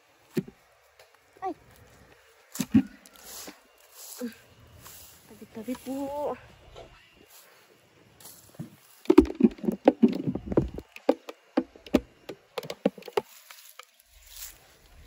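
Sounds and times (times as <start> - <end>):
dry vegetation crackling: 0.0 - 6.6, 12.9 - 15.0.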